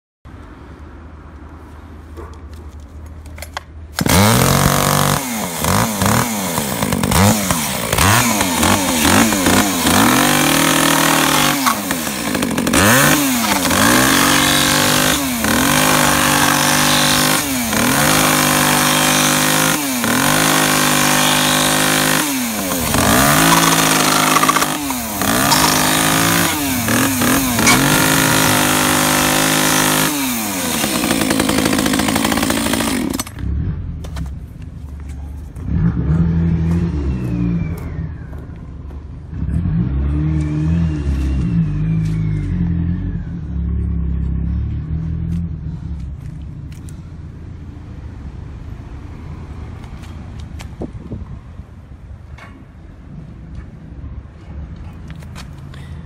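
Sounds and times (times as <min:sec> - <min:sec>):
chainsaw revving and idling: 0:04.0 - 0:33.5, 0:39.6 - 0:41.5.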